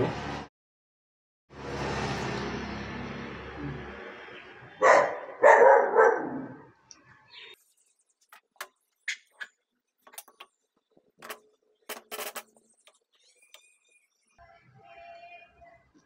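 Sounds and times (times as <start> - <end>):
dog barking: 4.8 - 6.6.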